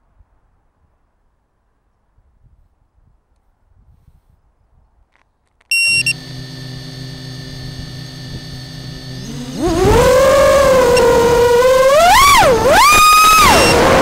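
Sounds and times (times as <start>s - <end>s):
short loud electronic beep: 5.7s - 6.3s
drone motors whining: 5.7s - 14.0s.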